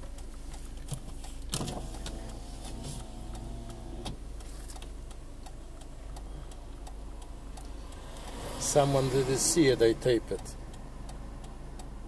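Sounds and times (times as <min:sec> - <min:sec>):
car road and engine noise: 0:00.0 - 0:12.0
faint clicks: 0:00.1 - 0:08.8.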